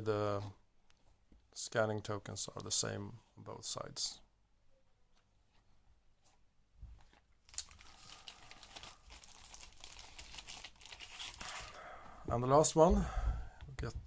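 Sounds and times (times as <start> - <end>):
plastic bag crinkling: 7.2 - 11.8.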